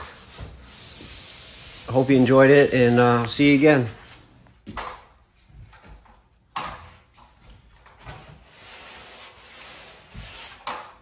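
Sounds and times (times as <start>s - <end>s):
sandpaper rubbing on drywall: 0.0s - 4.3s, 8.2s - 11.0s.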